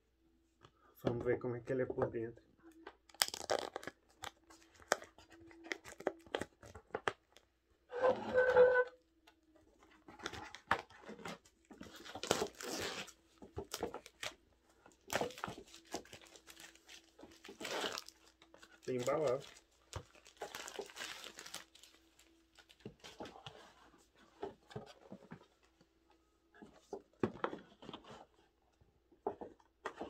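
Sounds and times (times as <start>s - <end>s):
plastic wrap ripping: 3.1s - 6.8s, 11.8s - 14.4s, 15.0s - 23.2s
plastic wrap crinkling: 3.1s - 7.4s, 9.9s - 23.7s.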